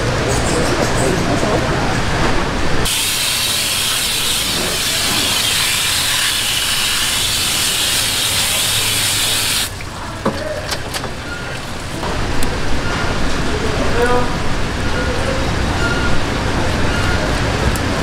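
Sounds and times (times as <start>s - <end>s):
hose water spraying: 2.9s - 9.8s.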